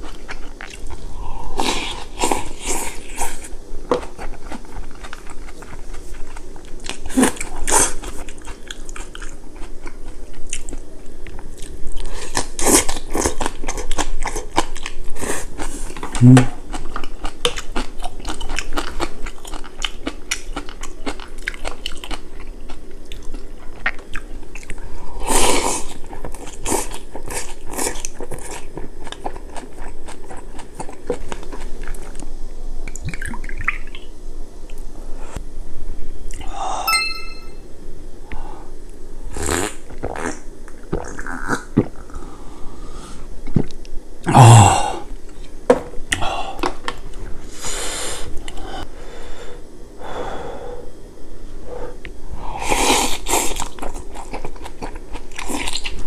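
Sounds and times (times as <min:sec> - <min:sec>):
crunchy chewing: 0:00.0 - 0:32.3, 0:52.6 - 0:56.0.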